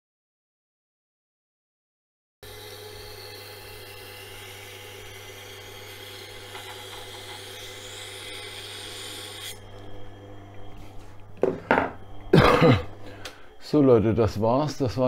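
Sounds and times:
knife scraping on grinding wheel: 2.4 - 9.9
grinder motor humming: 2.4 - 13.8.

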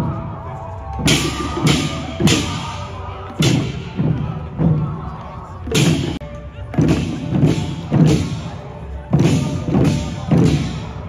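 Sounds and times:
drums beating in unison: 0.0 - 11.0.

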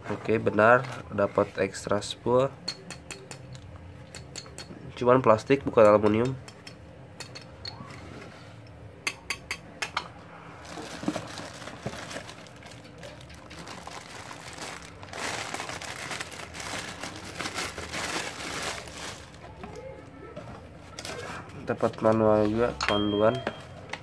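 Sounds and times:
plastic bag crinkling: 10.6 - 19.8.

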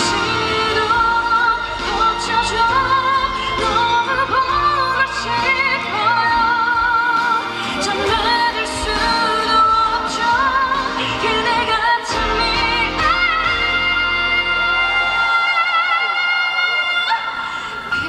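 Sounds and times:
song accompaniment: 0.0 - 18.0
woman singing into microphone: 0.0 - 18.0.

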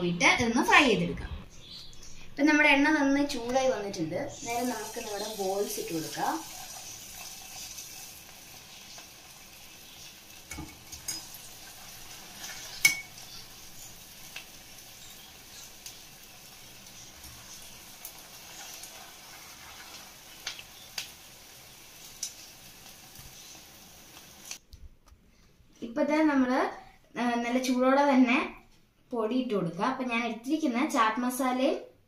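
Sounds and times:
dough deep-frying in oil: 4.3 - 24.6.

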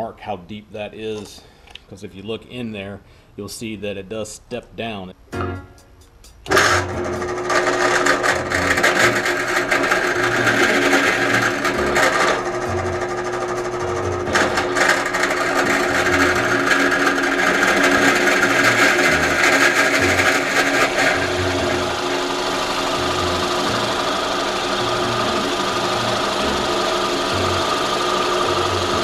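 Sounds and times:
bit boring into wood: 6.5 - 29.0
drill press motor running: 6.5 - 29.0.

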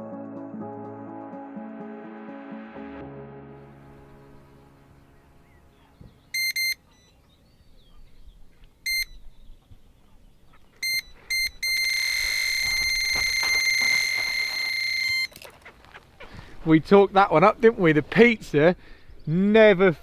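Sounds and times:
electronic bite alarm bleeping: 6.3 - 7.2, 8.8 - 9.2, 10.8 - 15.4.

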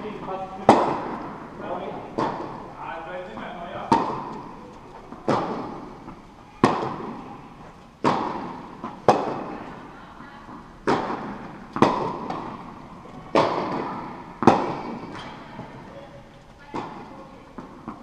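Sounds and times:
tennis ball struck and bouncing: 0.6 - 1.5, 2.1 - 2.7, 3.8 - 7.3, 8.0 - 9.6, 10.5 - 15.7.

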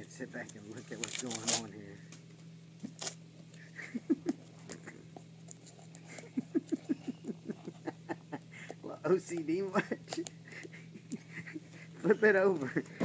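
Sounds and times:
wrapping paper rustling: 0.7 - 1.7.

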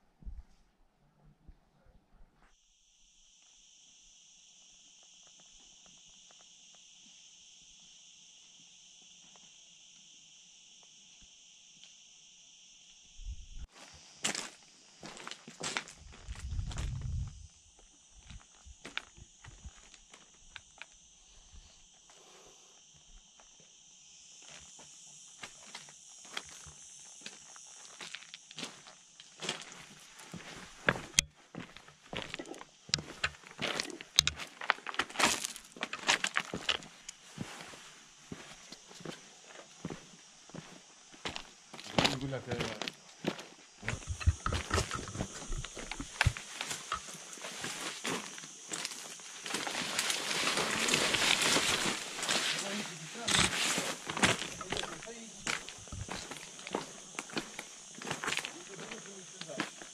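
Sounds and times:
insect buzz: 2.4 - 59.9
hiss: 2.6 - 30.9, 43.6 - 59.9
footsteps on stony ground: 13.8 - 17.5, 26.3 - 39.2, 39.8 - 59.9.

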